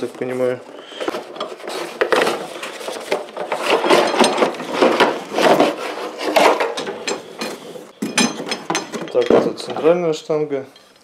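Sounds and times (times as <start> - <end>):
cardboard scraping against metal: 0.0 - 6.8.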